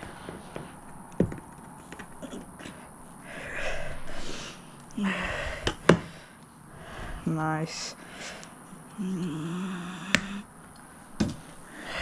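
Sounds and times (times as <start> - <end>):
person breathing out: 11.6 - 12.0.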